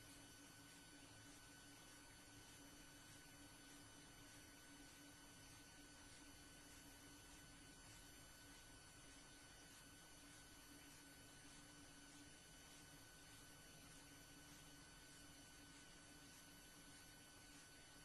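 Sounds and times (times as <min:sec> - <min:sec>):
faint electrical hum: 0:00.0 - 0:18.0.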